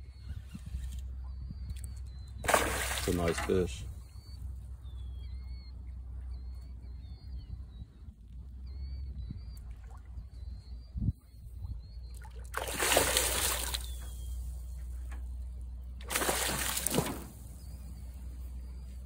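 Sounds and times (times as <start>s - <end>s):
fish splashing at water surface: 2.4s - 3.6s, 12.2s - 14.2s, 16.0s - 17.5s.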